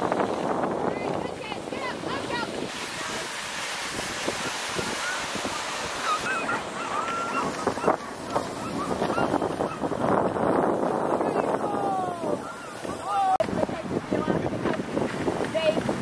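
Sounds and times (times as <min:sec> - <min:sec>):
wind on microphone: 0:00.0 - 0:16.0
sled runners hissing on snow: 0:01.3 - 0:13.3
dogs yelping: 0:05.9 - 0:10.0.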